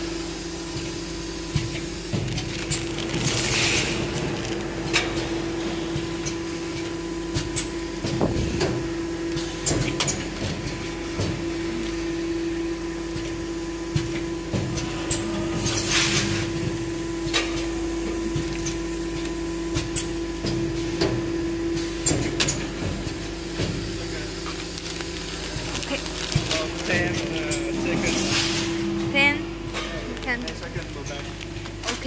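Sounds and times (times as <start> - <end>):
packing machine hum: 0.0 - 32.0.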